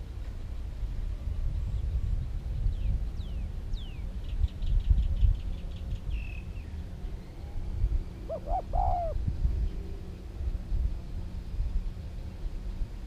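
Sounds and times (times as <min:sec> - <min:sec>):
steady low rumble: 0:00.0 - 0:13.0
dove cooing: 0:08.2 - 0:09.2.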